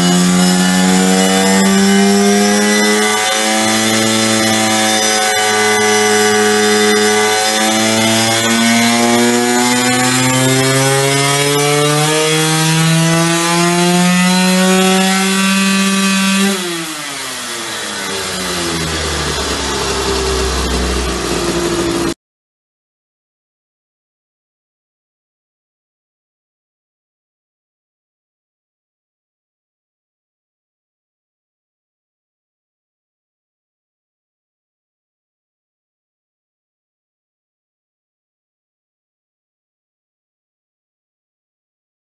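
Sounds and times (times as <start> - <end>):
two-stroke motorcycle engine revving: 0.0 - 22.2.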